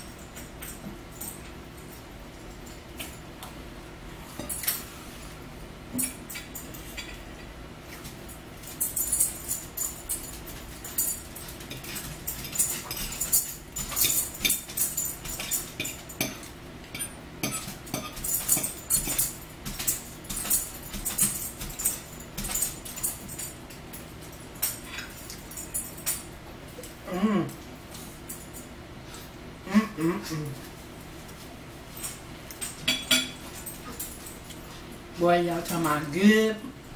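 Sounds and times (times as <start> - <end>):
forks tapping and scraping plates: 10.9 - 23.1, 32.5 - 34.2.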